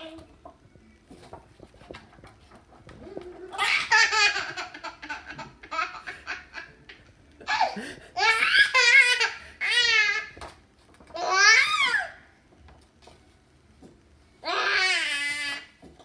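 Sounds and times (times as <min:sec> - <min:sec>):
toddler laughing: 0:03.4 - 0:10.2.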